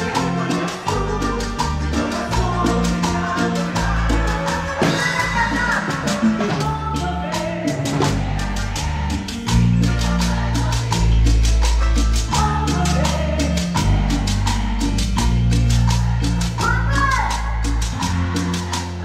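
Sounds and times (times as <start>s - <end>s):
latin dance band playing: 0.0s - 19.0s.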